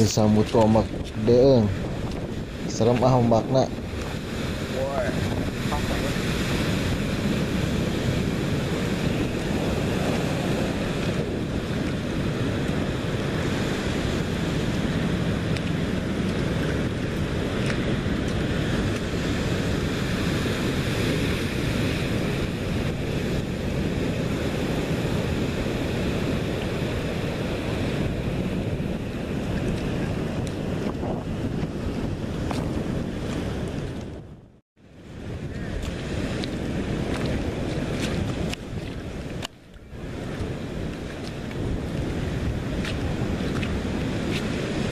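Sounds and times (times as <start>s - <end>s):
surf breaking on rocks: 0.0s - 33.9s
wind buffeting microphone: 0.0s - 44.9s.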